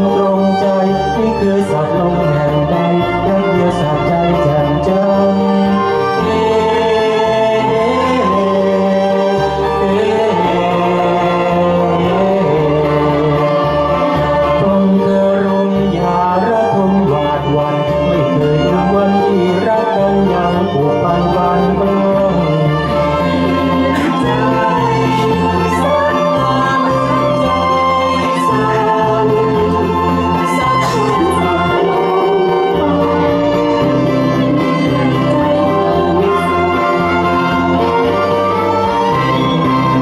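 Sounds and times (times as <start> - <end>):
bass line accompaniment: 0.0 - 40.0
man singing: 0.0 - 40.0
violin playing: 0.0 - 40.0
woman singing: 23.7 - 37.6.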